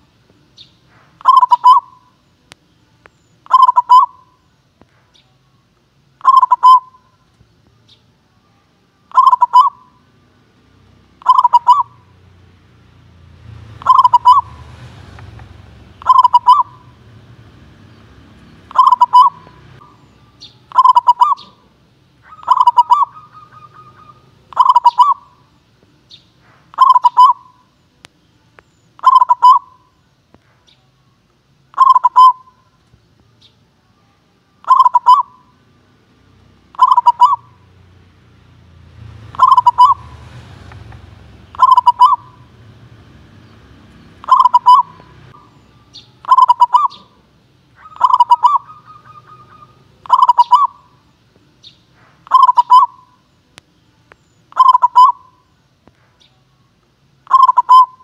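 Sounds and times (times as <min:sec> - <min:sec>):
dove cooing: 0:01.2 - 0:02.2, 0:03.4 - 0:04.4, 0:06.2 - 0:07.2, 0:09.1 - 0:10.0, 0:11.1 - 0:12.2, 0:13.4 - 0:25.5, 0:26.6 - 0:27.6, 0:29.0 - 0:29.9, 0:31.7 - 0:32.6, 0:34.6 - 0:35.6, 0:36.7 - 0:37.7, 0:39.2 - 0:43.4, 0:44.1 - 0:51.0, 0:52.2 - 0:53.2, 0:54.5 - 0:55.4, 0:57.2 - 0:58.0.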